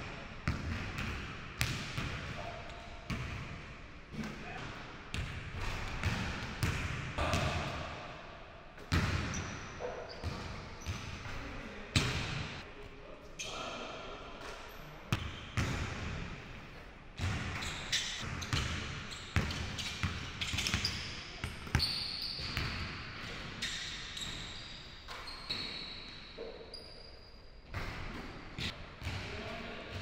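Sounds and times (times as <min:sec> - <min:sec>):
sneaker squeaks: 0:09.2 - 0:11.3, 0:17.5 - 0:28.2.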